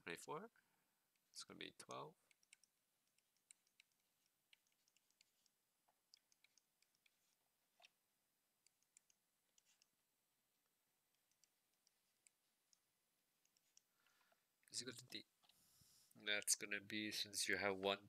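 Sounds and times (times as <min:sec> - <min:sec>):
stylus tapping on tablet screen: 0:02.3 - 0:07.9.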